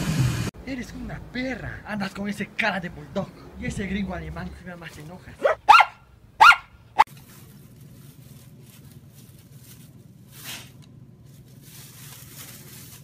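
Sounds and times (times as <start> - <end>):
low steady hum: 0.6 - 13.0
paper bag crinkling: 7.1 - 13.0.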